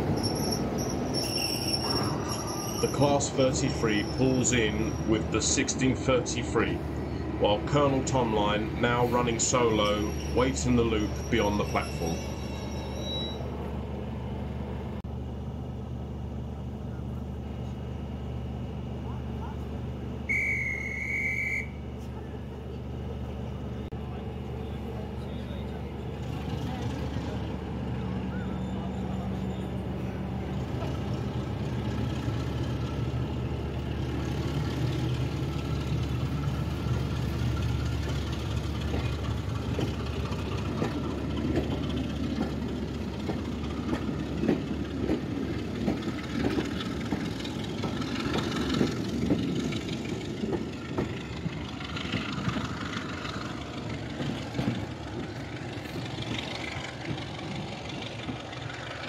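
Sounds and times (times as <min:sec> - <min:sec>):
diesel locomotive engine running: 0:00.0 - 0:59.0
train wheels clattering over rail joints: 0:30.6 - 0:59.0.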